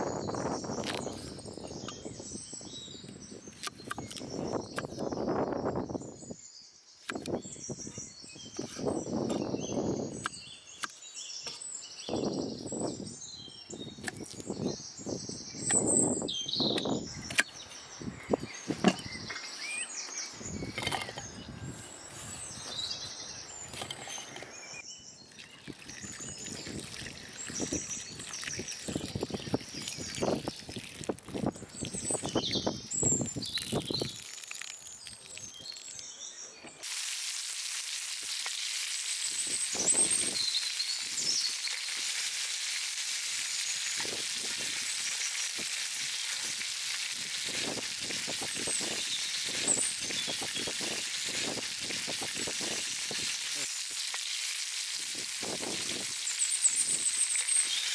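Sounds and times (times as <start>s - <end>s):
birds chirping: 0.0s - 36.8s.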